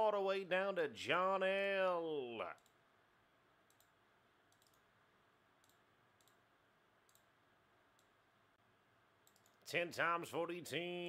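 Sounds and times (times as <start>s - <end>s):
computer mouse clicks: 2.5s - 2.8s, 3.6s - 4.9s, 5.6s - 6.4s, 7.0s - 8.2s, 9.2s - 9.6s.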